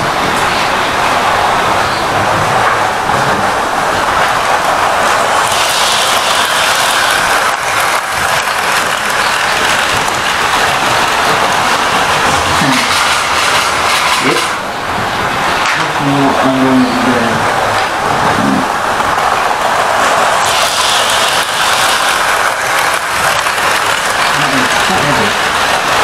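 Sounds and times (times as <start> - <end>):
model train rattling on track: 0.0 - 26.0.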